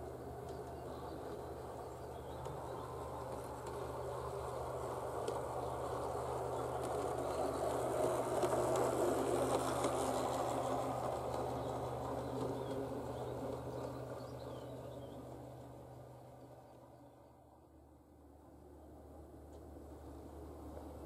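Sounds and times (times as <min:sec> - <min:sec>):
model wheels rolling on rails: 0:00.0 - 0:16.5
model streetcar motor whirring: 0:00.0 - 0:21.0.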